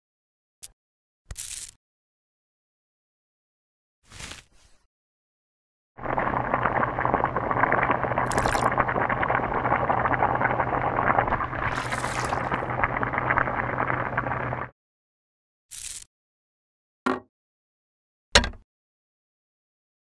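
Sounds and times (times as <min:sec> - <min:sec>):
water boiling in a pot: 0:06.0 - 0:14.7.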